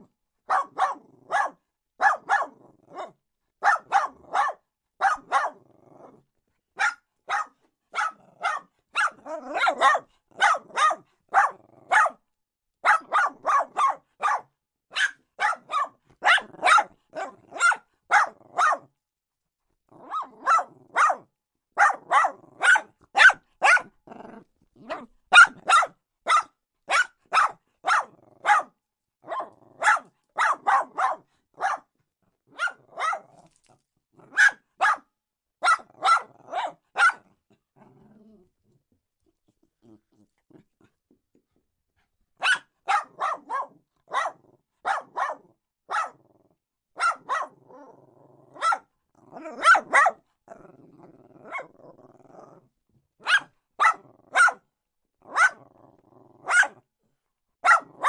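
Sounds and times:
small dog barking: 0.5 - 5.7, 6.8 - 12.2, 12.8 - 18.9, 20.0 - 24.0, 24.8 - 33.6, 34.2 - 37.3, 42.4 - 46.3, 47.0 - 47.9, 48.5 - 50.2, 51.4 - 52.0, 53.2 - 54.6, 55.2 - 55.8, 56.4 - 56.8, 57.6 - 58.0.

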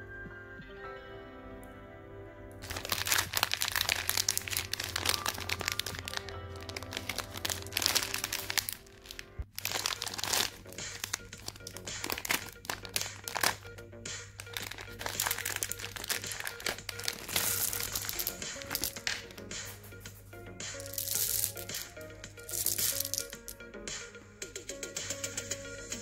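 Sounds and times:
background music: 0.0 - 26.0
plastic packet crinkling: 2.6 - 13.8, 14.4 - 19.8, 20.8 - 23.6.

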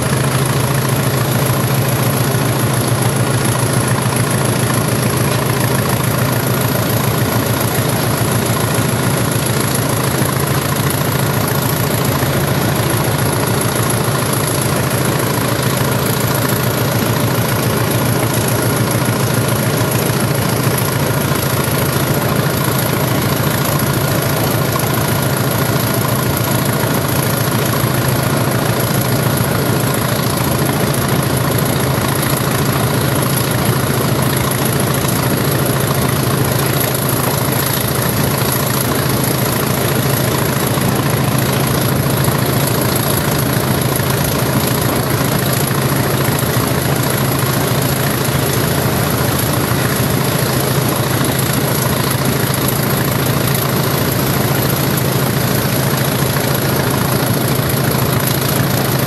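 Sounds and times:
diesel locomotive engine running: 0.0 - 59.0.

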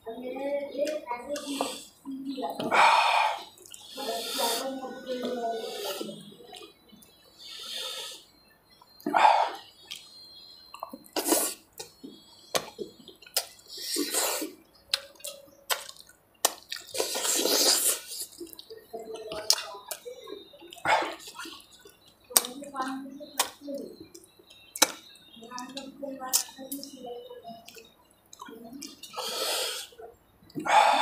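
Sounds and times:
mouth clicks: 0.8 - 31.0
wet chewing and slurping: 2.6 - 8.0, 9.0 - 22.6.

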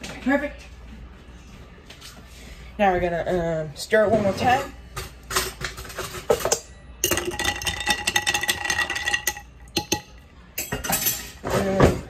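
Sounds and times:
spoon clinking ice in a glass: 7.0 - 11.3.

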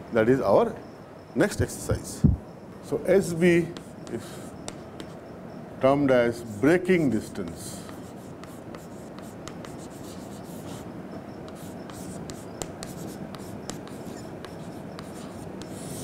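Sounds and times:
background hiss: 0.0 - 16.0
chalk scratching on chalkboard: 3.7 - 5.2, 7.3 - 10.9, 11.5 - 16.0
chalk tapping: 3.7 - 5.2, 7.4 - 10.9, 11.5 - 16.0.

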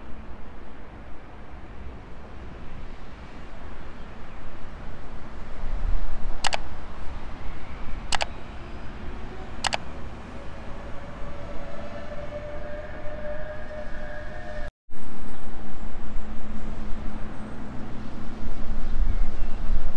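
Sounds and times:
faint rising tone of approaching train: 0.0 - 19.9
sharp clicks: 6.4 - 6.6, 8.1 - 8.3.

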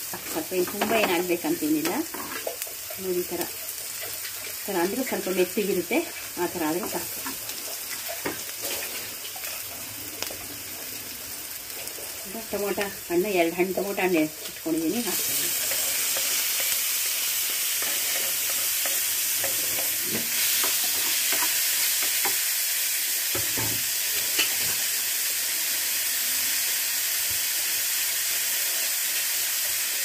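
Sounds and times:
vegetables sizzling in oil: 0.0 - 30.0
wooden spatula scraping pan: 6.8 - 9.6.

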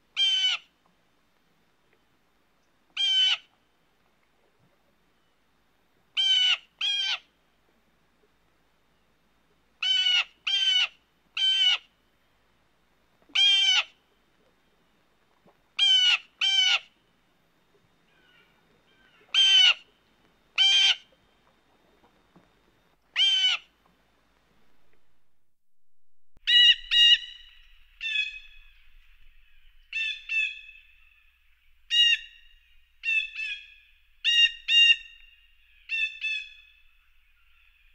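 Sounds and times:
blue jay harsh rasping calls: 0.2 - 0.7, 6.2 - 7.2, 9.8 - 11.9, 13.4 - 13.9, 15.8 - 16.9, 19.3 - 19.8, 20.6 - 21.0, 23.2 - 23.7, 26.5 - 28.4.

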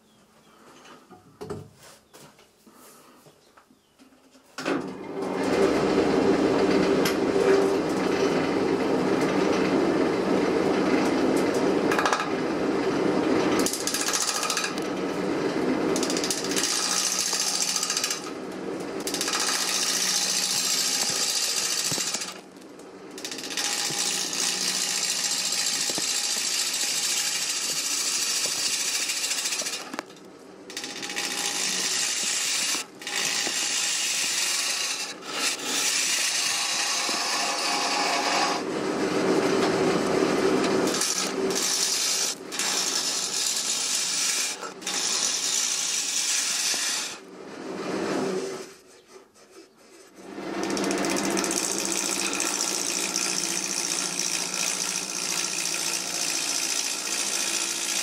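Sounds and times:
gouge cutting wood on lathe: 13.3 - 22.5, 23.2 - 58.0.

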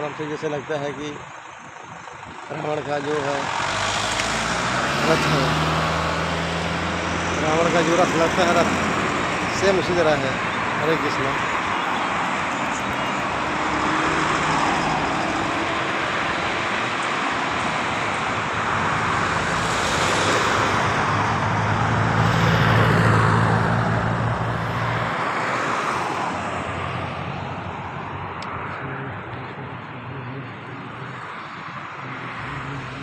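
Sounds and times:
road traffic: 0.0 - 33.0
low engine hum: 26.1 - 33.0.

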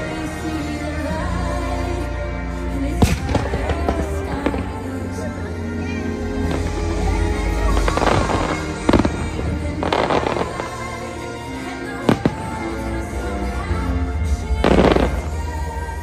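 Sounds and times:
orchestral music with deep bass: 0.0 - 16.0
fireworks bangs: 3.0 - 5.0, 6.4 - 10.9, 14.6 - 15.5
crackling firework bursts: 7.6 - 11.0.

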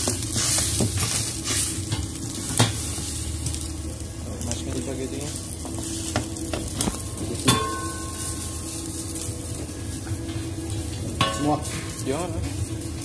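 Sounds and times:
soup simmering in a wok: 0.0 - 4.3.

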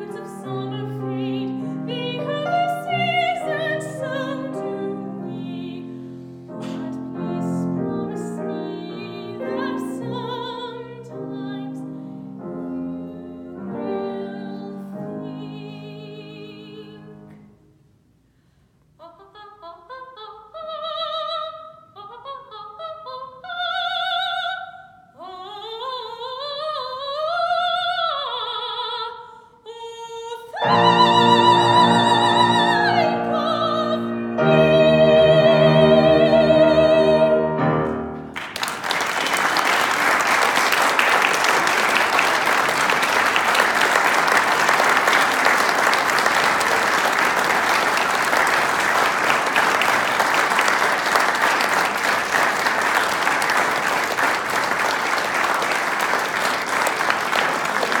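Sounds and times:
woman singing opera: 0.0 - 17.3, 19.0 - 37.9
piano accompaniment: 0.0 - 17.6, 30.6 - 39.0
applause: 38.3 - 58.0.

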